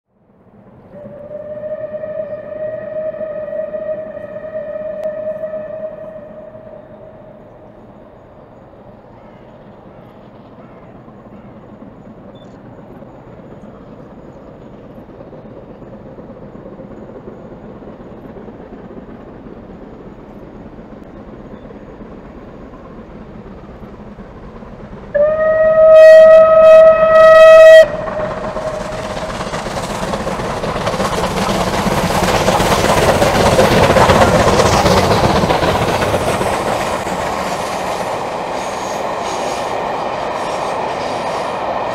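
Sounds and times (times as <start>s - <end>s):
steam train passing: 0.1s - 41.9s
steam whistle: 0.9s - 7.4s, 25.2s - 29.3s.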